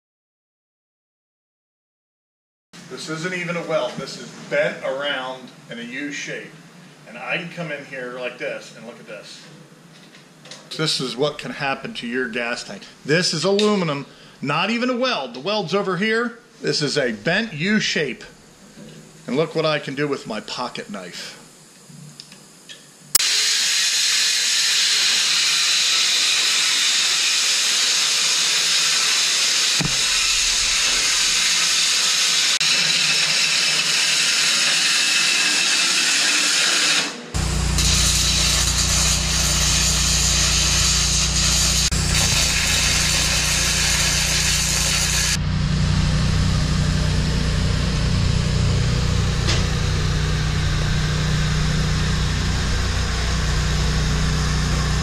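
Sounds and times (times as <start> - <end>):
power tool cutting metal: 23.2 - 55.0
steady low hum: 29.8 - 31.8, 37.4 - 55.0.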